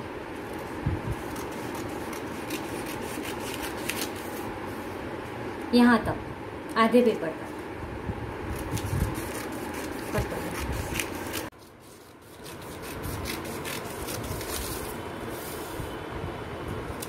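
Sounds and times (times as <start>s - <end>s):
scissors snipping newspaper: 0.5s - 4.5s, 8.5s - 15.0s
paper rustling: 1.2s - 4.5s, 8.6s - 15.8s.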